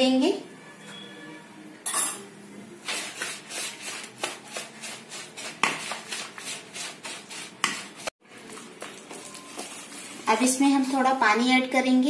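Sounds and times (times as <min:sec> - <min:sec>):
whisk scraping in a bowl: 0:02.8 - 0:08.1.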